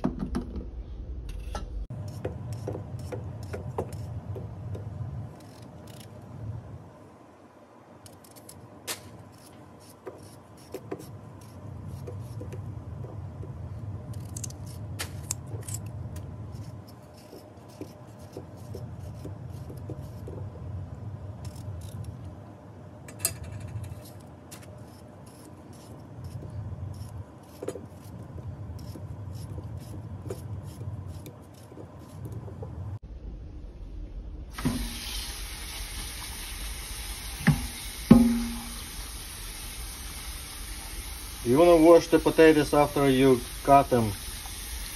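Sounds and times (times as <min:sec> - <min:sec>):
knife cutting potatoes: 0:16.6 - 0:20.5
low hum: 0:18.5 - 0:41.4.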